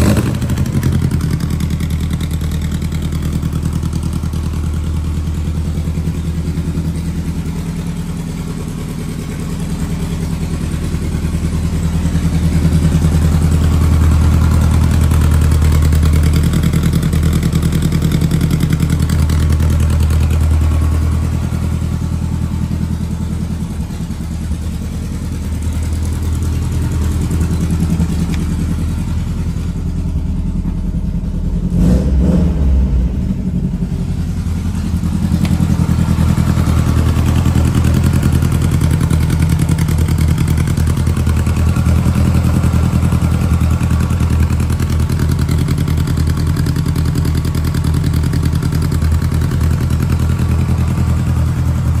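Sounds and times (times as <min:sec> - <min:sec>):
engine revving: 0:00.0 - 0:01.4, 0:31.4 - 0:39.6
car engine idling: 0:00.0 - 0:52.0.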